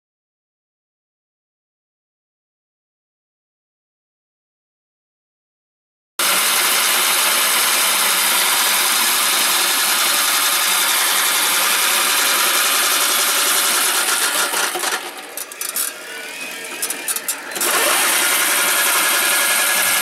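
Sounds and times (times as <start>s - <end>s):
reel mower motor whirring: 6.2s - 20.0s.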